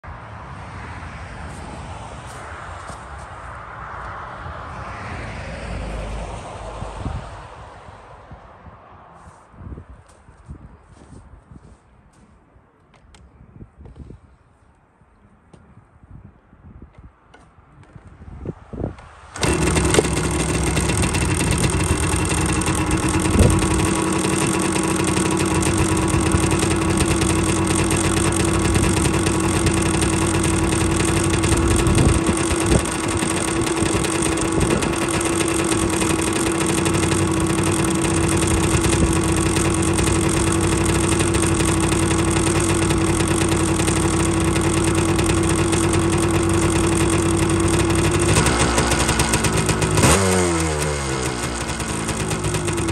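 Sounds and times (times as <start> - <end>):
engine kick-start: 19.4 - 52.9
two-stroke engine idling: 19.4 - 52.9.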